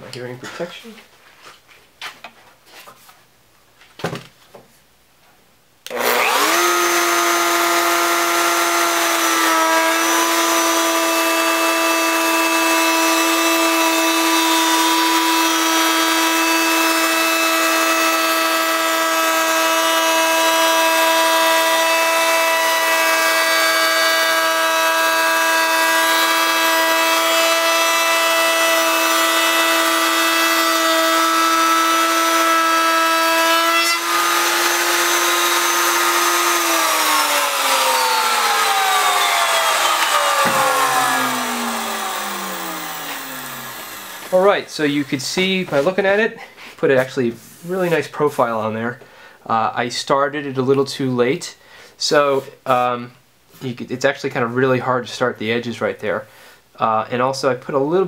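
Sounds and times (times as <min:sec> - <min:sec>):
router motor whining: 0:05.9 - 0:45.9
router bit cutting wood: 0:05.9 - 0:46.1.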